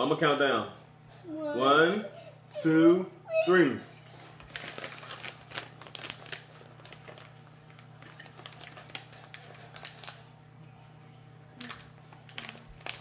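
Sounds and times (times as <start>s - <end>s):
chips being chewed crunchily: 4.4s - 10.4s, 11.6s - 13.0s.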